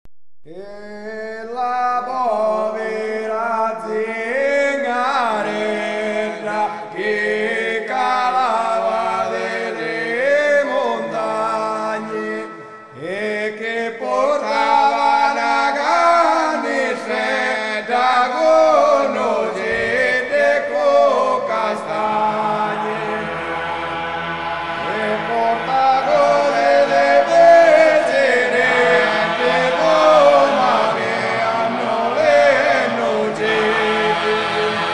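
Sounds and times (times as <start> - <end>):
men singing a chant: 0.5 - 34.9
held drone note: 21.6 - 34.9.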